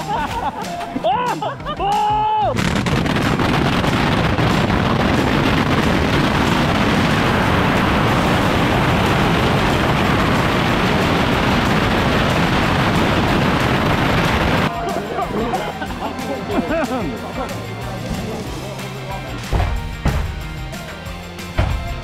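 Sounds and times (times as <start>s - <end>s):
bottle rockets launching and bursting: 2.5s - 14.7s.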